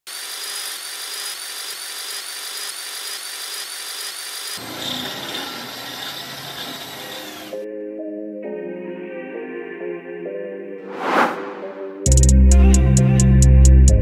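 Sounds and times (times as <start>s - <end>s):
power tool pulsing whir: 0.1s - 7.6s.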